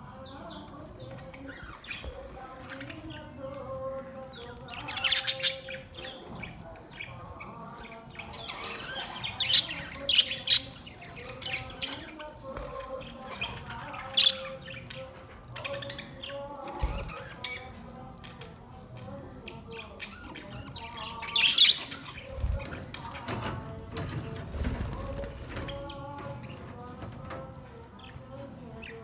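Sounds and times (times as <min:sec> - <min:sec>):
budgerigars chattering and chirping: 0:04.3 - 0:24.1.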